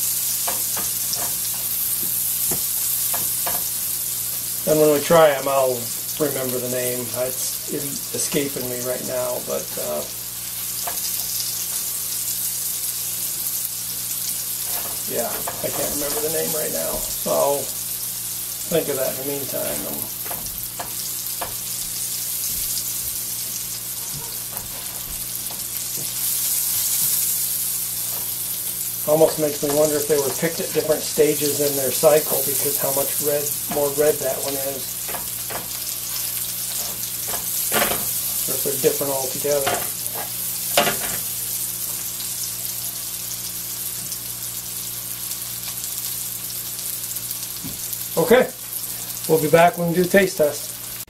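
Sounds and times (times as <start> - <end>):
spatula turning food: 0.0 - 5.3, 6.0 - 43.2
mushrooms sizzling in a frying pan: 0.0 - 51.0
spatula scraping and tapping pan: 14.6 - 17.2, 29.1 - 38.5, 39.6 - 41.3.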